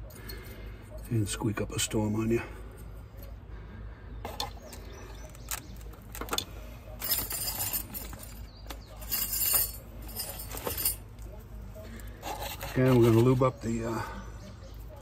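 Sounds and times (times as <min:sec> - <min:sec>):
metal brake clips clinking: 0:04.3 - 0:11.2.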